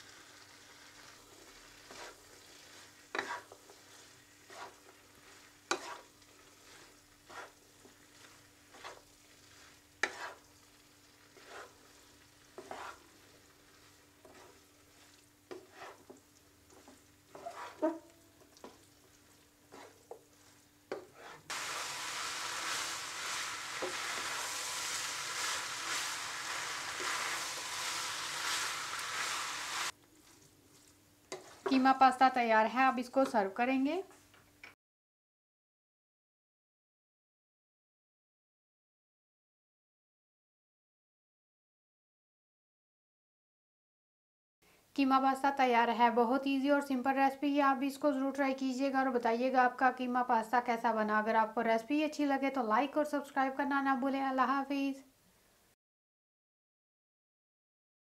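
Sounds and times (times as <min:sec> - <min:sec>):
food sizzling: 0:00.0 - 0:32.1
spatula scraping a pan: 0:00.1 - 0:10.6, 0:11.2 - 0:18.9, 0:19.6 - 0:31.8.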